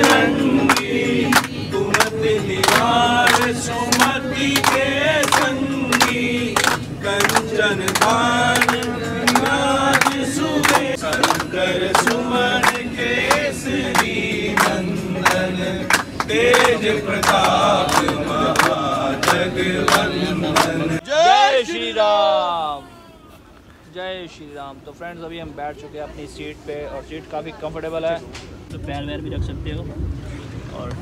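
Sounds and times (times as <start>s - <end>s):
rhythmic hand clapping: 0.0s - 21.0s
men singing a chant: 0.0s - 21.3s.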